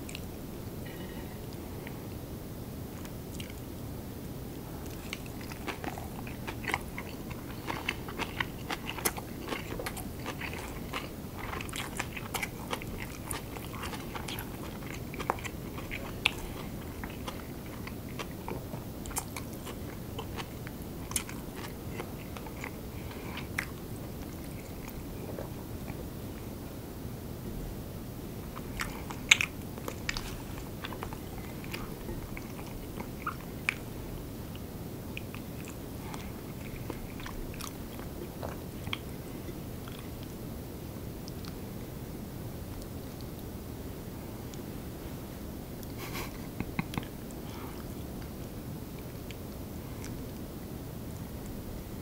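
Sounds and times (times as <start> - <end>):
steady low hiss: 0.0 - 52.0
close chewing and crunching: 3.0 - 3.7, 4.7 - 26.6, 28.4 - 40.4, 41.2 - 41.9, 45.8 - 50.5.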